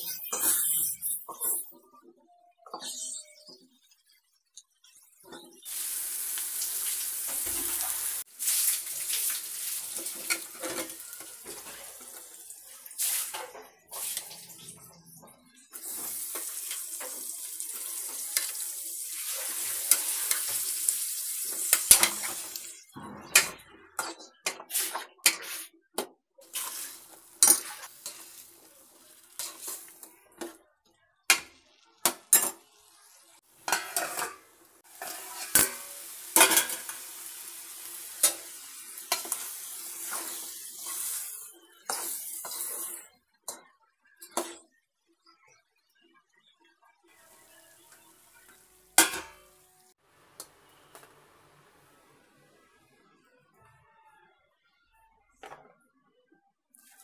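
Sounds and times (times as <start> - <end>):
vegetables sizzling in oil: 5.5 - 14.8, 15.8 - 22.9, 26.4 - 30.1, 32.3 - 43.1
metal spoon scraping pan: 26.5 - 28.4, 29.3 - 30.1, 33.7 - 37.0.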